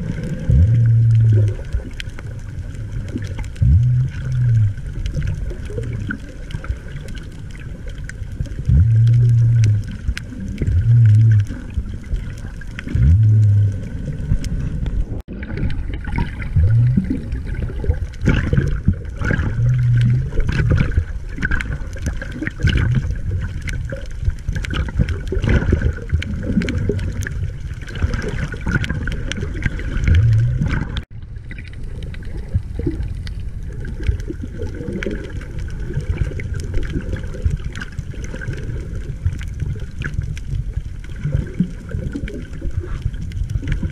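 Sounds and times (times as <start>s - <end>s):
low hum: 0.0s - 5.1s, 8.6s - 21.3s, 30.0s - 34.0s
underwater crackles and clicks: 0.0s - 43.9s
underwater water churning: 0.0s - 43.9s.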